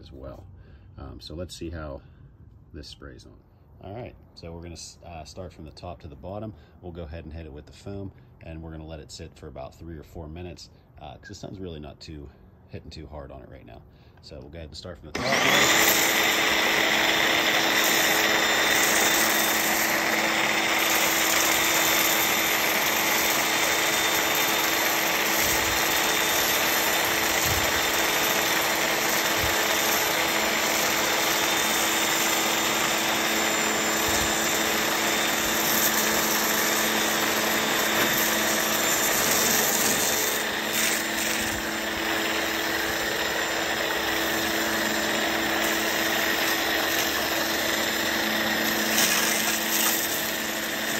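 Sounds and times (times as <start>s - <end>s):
pressure washer motor humming: 15.1s - 50.9s.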